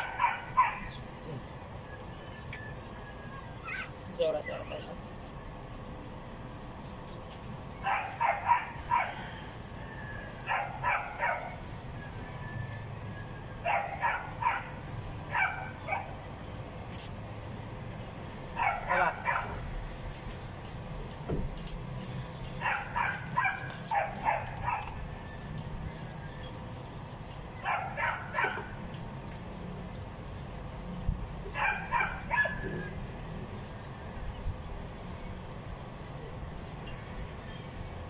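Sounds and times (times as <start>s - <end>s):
dog barking: 0.0s - 0.9s, 7.8s - 9.2s, 10.4s - 11.6s, 13.6s - 16.2s, 18.6s - 19.6s, 22.6s - 25.0s, 27.6s - 28.8s, 31.6s - 32.7s.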